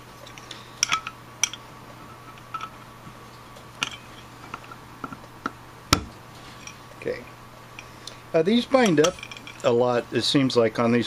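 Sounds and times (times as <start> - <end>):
metal parts clicking together: 0.2 - 1.6, 2.3 - 2.8, 8.8 - 9.7.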